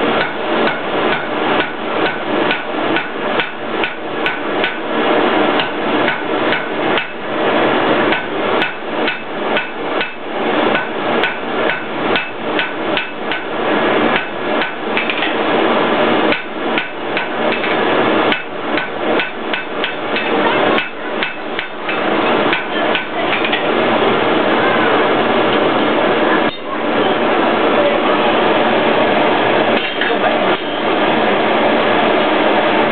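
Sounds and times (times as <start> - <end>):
hammer striking iron on anvil: 0.2 - 4.9, 5.6 - 7.2, 8.1 - 13.5, 14.1 - 15.4, 16.3 - 23.6.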